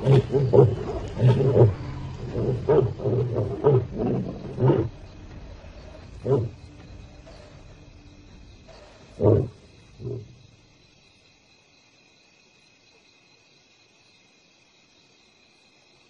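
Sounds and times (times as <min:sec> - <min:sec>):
lions roaring: 0:00.0 - 0:07.9, 0:08.5 - 0:10.5
crickets chirring: 0:00.0 - 0:16.0.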